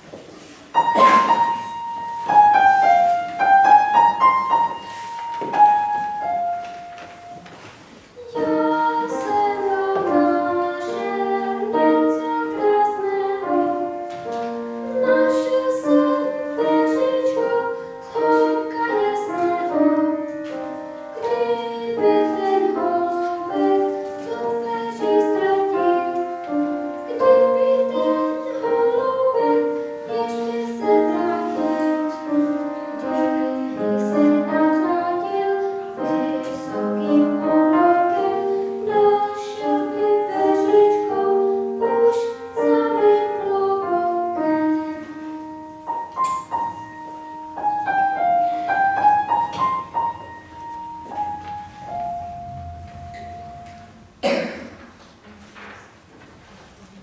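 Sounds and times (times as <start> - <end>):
upright piano playing: 0.0 - 54.6
boy singing: 8.2 - 14.0, 14.9 - 20.3, 21.2 - 45.2.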